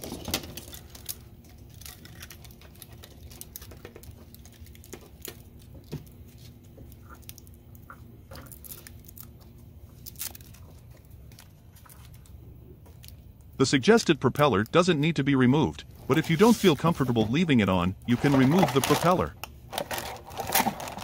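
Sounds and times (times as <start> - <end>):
faint steady hum: 0.0 - 21.0
handling clicks and rustles: 16.1 - 21.0.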